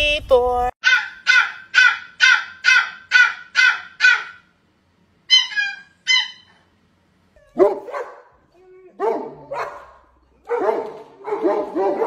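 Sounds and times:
puppy yipping: 0.8 - 4.4, 5.3 - 6.6, 9.0 - 12.0.

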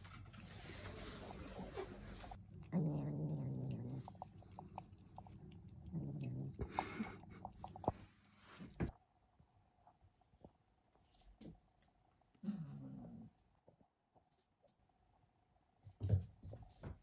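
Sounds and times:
cat growling: 0.5 - 8.2, 12.4 - 13.4
licking and chewing clicks: 2.4 - 8.4.

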